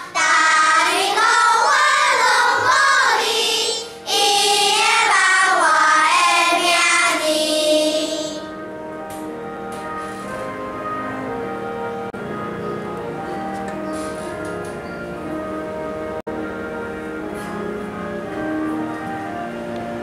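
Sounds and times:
children's choir singing: 0.0s - 8.6s
held accompaniment tones: 0.0s - 20.0s.

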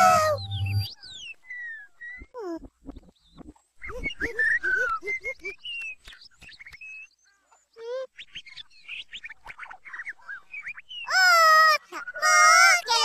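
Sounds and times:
reversed cartoon bird chirps: 0.0s - 4.9s.

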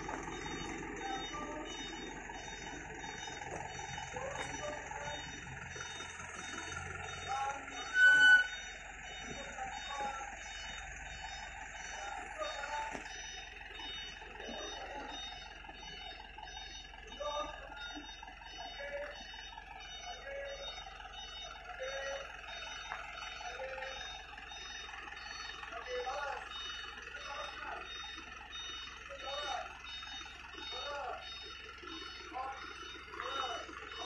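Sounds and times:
faint voices: 0.0s - 13.1s, 13.7s - 16.2s, 16.9s - 18.0s, 21.5s - 24.3s, 25.5s - 28.0s, 31.8s - 34.0s
fire truck engine running: 0.0s - 34.0s.

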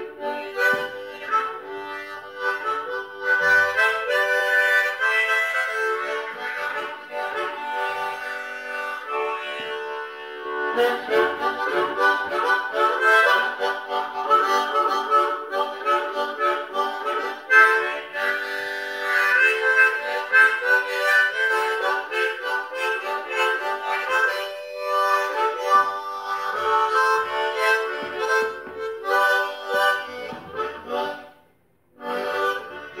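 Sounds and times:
harmonica playing: 0.0s - 33.0s.

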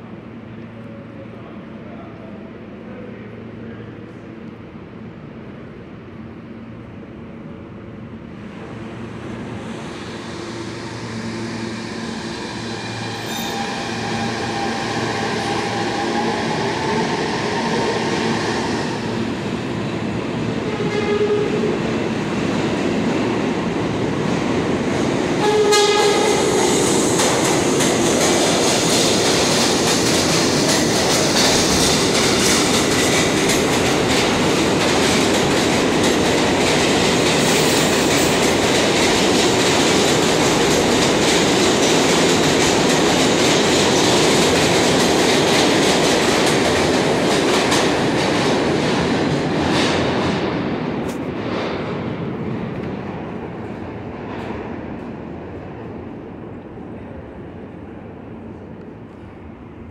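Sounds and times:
subway train rushing past: 0.0s - 59.9s
train horn blast: 12.9s - 16.6s, 20.6s - 21.7s, 25.4s - 26.5s.

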